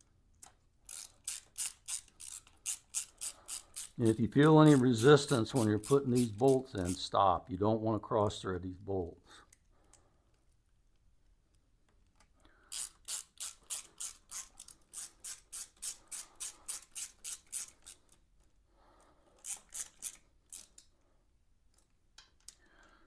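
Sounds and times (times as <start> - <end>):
hand ratchet clicking: 0.8 - 7.0, 12.7 - 18.2, 19.4 - 20.9.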